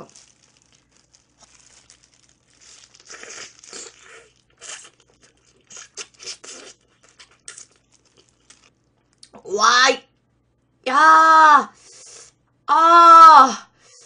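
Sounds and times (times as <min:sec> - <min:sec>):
wet tearing bite: 0:00.0 - 0:09.3
smacking chews: 0:00.2 - 0:09.3.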